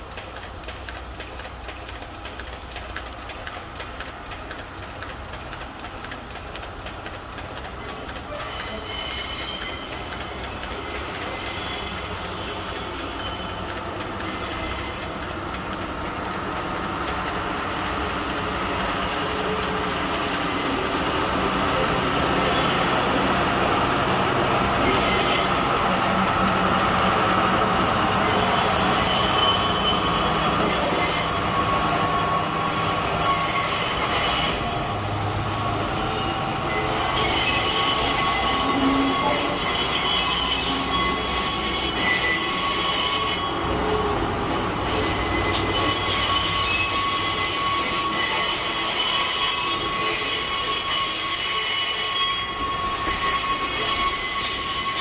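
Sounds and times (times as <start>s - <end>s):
diesel locomotive engine hum: 0.0s - 48.8s
train wheels squealing on track: 7.8s - 15.4s, 17.9s - 23.4s, 24.6s - 55.0s.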